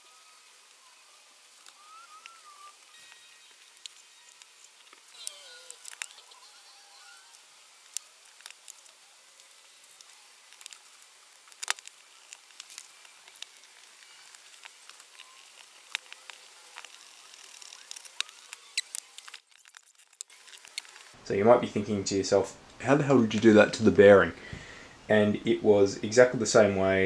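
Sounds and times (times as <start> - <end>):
faint hiss: 0.0 - 19.3.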